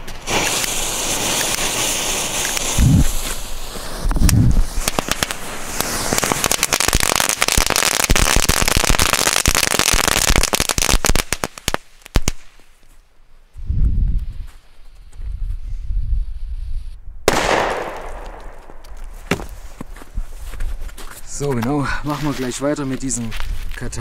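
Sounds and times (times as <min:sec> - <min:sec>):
firecrackers crackling: 0:00.0 - 0:12.8, 0:17.3 - 0:20.0.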